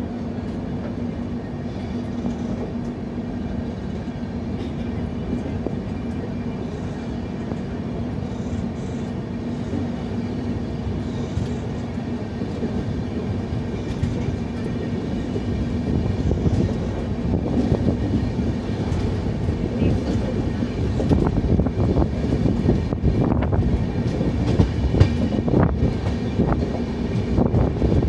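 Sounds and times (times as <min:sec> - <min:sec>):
train wheels rumbling on track: 0:00.0 - 0:28.0.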